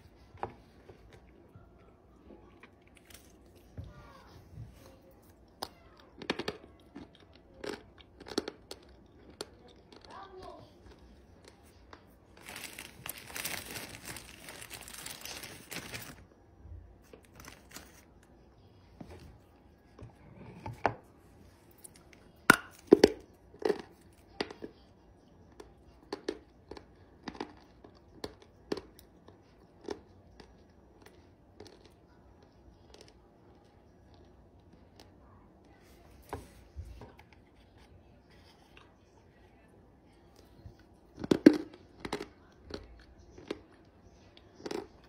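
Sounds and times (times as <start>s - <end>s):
dry clay crunching: 11.4s - 16.2s.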